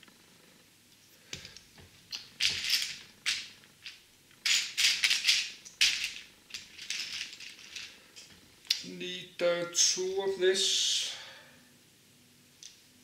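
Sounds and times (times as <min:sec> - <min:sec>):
plastic bricks rattling: 0:02.1 - 0:08.0.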